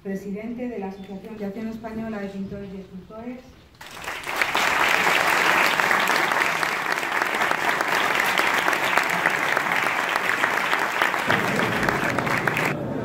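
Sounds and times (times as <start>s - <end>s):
audience applauding: 3.8s - 12.8s.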